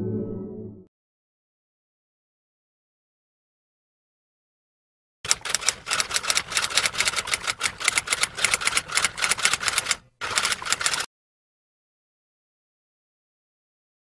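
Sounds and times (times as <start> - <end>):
typewriter keystroke clicks: 5.3 - 11.1.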